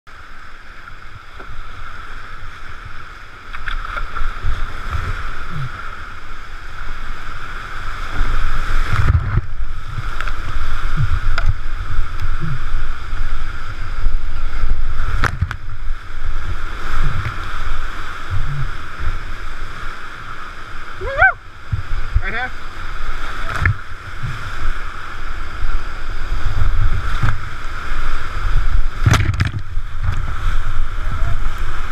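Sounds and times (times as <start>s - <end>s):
whitewater rapids rushing: 0.1s - 31.9s
sharp knocks on kayak: 15.2s - 15.6s, 29.0s - 30.2s.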